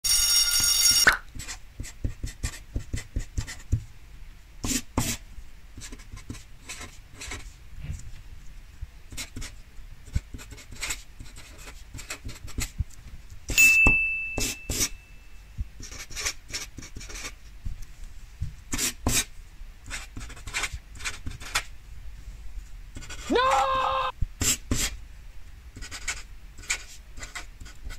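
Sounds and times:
marker scratching on paper: 1.4s - 3.8s, 4.6s - 5.2s, 5.8s - 7.6s, 9.1s - 12.8s, 14.4s - 14.9s, 15.8s - 17.4s, 18.7s - 19.3s, 19.9s - 21.7s, 23.0s - 23.3s, 24.4s - 25.0s, 25.8s - 27.9s
high ding: 13.6s - 15.5s.

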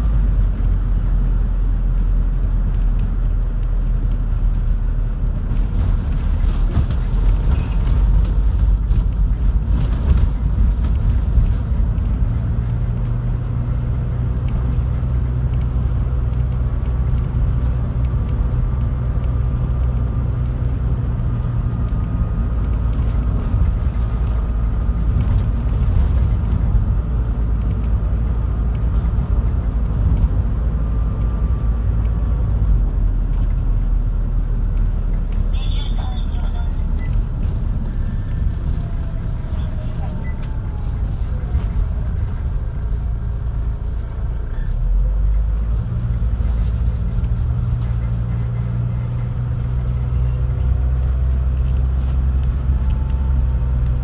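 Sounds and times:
van engine and road rumble: 0.0s - 54.0s.

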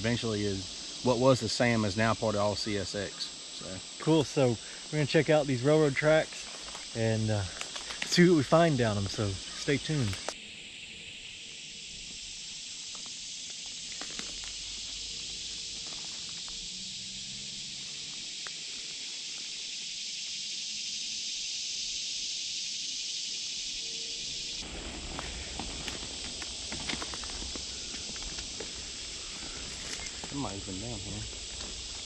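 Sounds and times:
insect chorus drone: 0.0s - 32.0s
footsteps through undergrowth: 6.1s - 8.4s, 12.9s - 16.6s, 24.6s - 32.0s.

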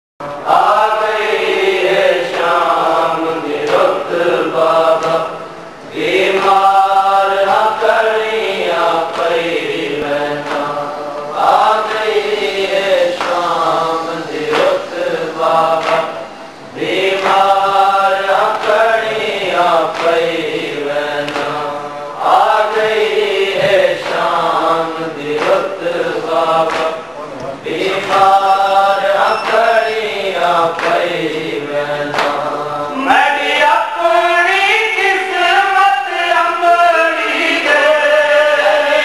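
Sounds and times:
man chanting into a microphone: 0.2s - 39.0s.

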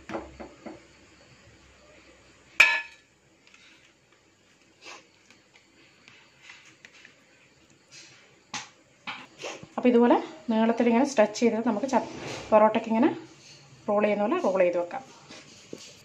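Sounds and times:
kitchenware clink: 2.6s - 3.0s.

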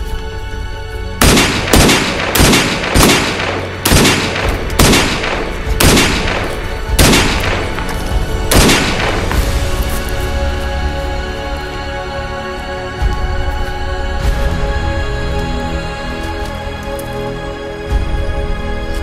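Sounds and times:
soft background music: 0.0s - 19.0s
gunshots with echo: 1.2s - 9.4s.

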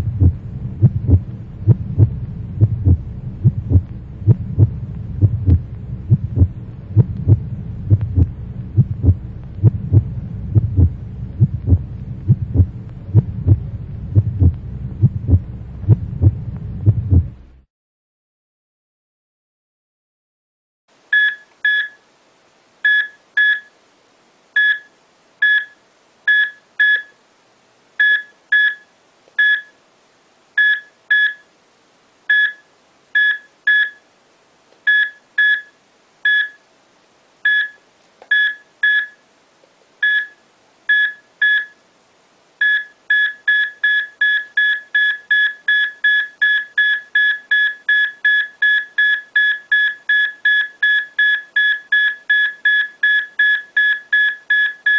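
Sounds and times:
field meter beeping: 21.1s - 22.0s, 22.9s - 23.7s, 32.3s - 32.6s, 34.9s - 36.6s, 37.5s - 39.2s, 40.0s - 41.8s, 42.6s - 54.9s.

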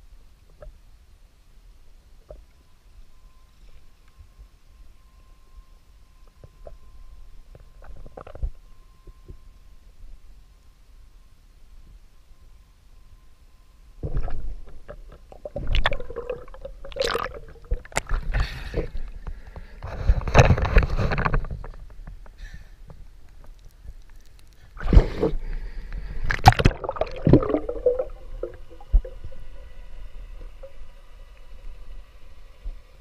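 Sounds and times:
muffled water splashing and gurgling: 14.0s - 22.2s, 23.0s - 33.0s.

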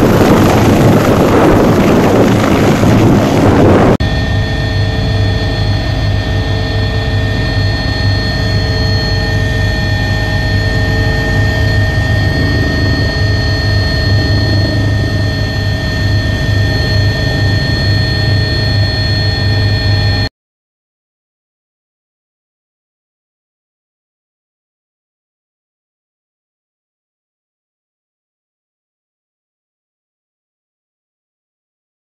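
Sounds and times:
engine humming and whining: 0.0s - 20.3s.

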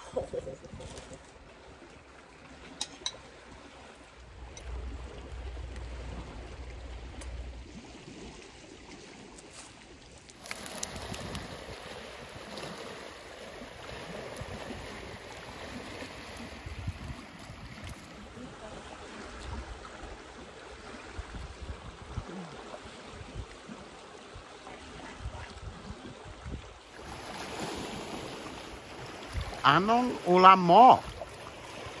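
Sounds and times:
lake water lapping at shore: 0.0s - 32.0s
wind buffeting microphone: 14.0s - 18.3s, 21.0s - 22.3s.

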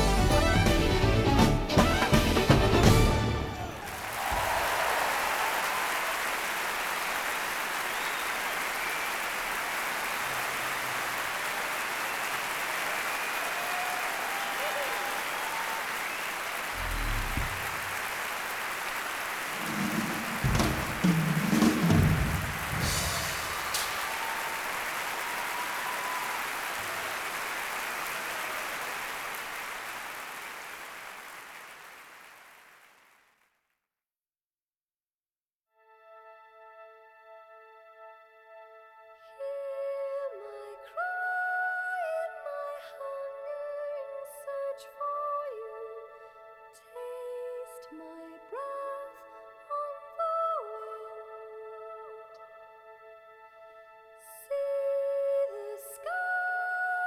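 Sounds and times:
audience applauding: 0.0s - 33.4s.

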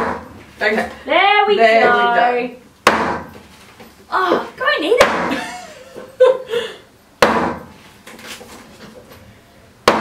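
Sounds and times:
hatchet chopping into wooden board: 0.0s - 0.3s, 2.8s - 3.4s, 5.0s - 5.4s, 7.2s - 7.7s.

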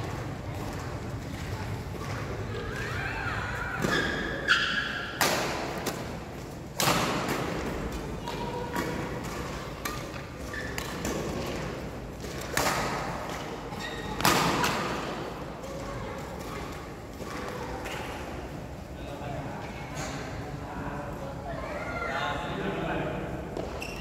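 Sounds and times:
shoes squeaking on court: 9.4s - 11.6s, 13.4s - 14.3s, 23.6s - 24.0s.

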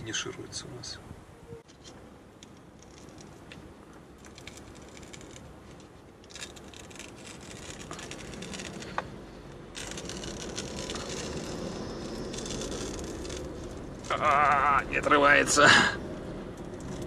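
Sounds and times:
car engine and road noise: 0.0s - 17.0s
paper rustling on dashboard: 2.6s - 15.0s.

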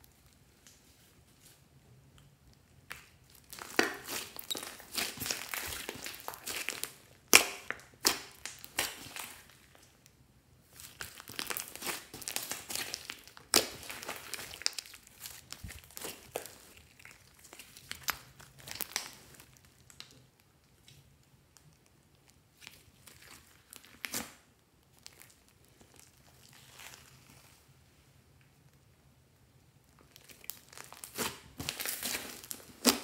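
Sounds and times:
slime squishing and crackling: 2.7s - 10.0s, 10.6s - 27.6s, 29.8s - 33.0s
slime popping: 2.9s - 9.8s, 10.8s - 19.2s.

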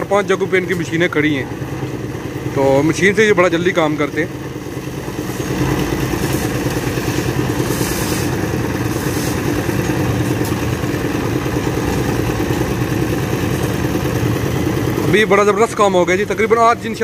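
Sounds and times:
concrete mixer engine running: 0.0s - 17.0s
short hissing scraping noises: 6.2s - 9.6s.

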